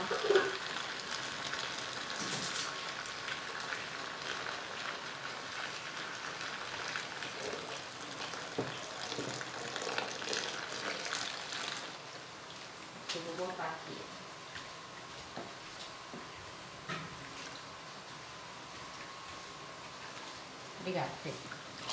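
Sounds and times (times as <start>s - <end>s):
water pouring into foamy liquid: 0.0s - 12.1s.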